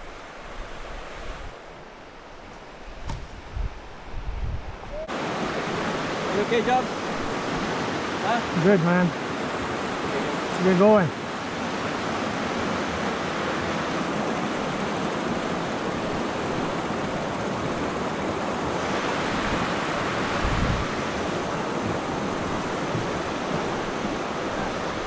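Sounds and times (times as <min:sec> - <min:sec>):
wind noise on microphone: 0:00.0 - 0:01.7, 0:02.4 - 0:05.5, 0:18.8 - 0:25.0
low thump: 0:02.5 - 0:03.7.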